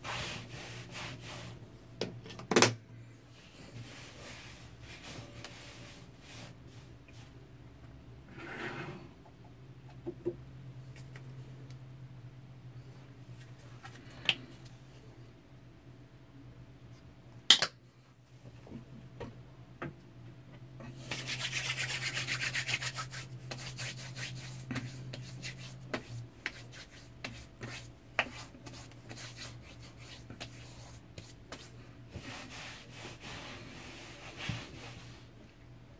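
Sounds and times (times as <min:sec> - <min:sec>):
rubbing and wiping face: 0:20.8 - 0:35.3.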